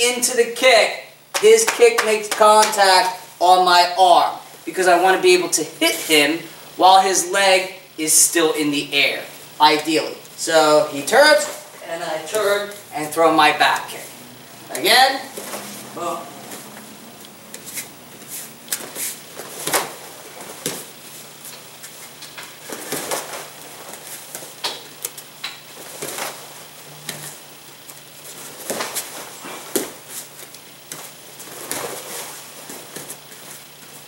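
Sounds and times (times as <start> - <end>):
uniforms snapping: 1.3 - 2.9, 16.4 - 26.4, 27.0 - 33.9
bare feet slapping on mats: 1.3 - 3.2, 14.7 - 34.0.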